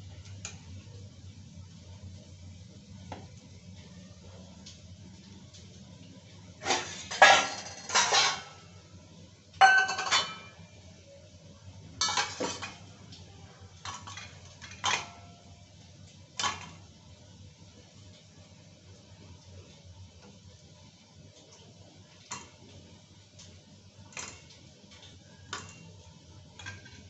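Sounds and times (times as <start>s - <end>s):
metal cookware clanking: 6.6s - 8.8s, 9.6s - 10.7s, 12.0s - 12.9s, 13.7s - 15.4s, 16.4s - 16.9s, 24.1s - 27.0s.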